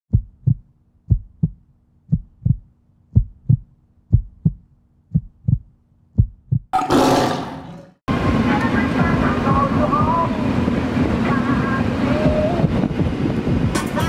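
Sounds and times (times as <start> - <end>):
heartbeat thumps: 0.1 - 6.8, 9.0 - 10.4, 12.2 - 13.8.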